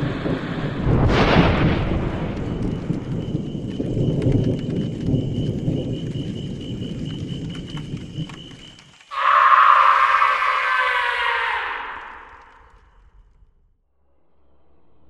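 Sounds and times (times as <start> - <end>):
rain: 0.0 - 10.6
thunder rumbling: 0.0 - 13.3
sharp crackles: 1.0 - 13.3.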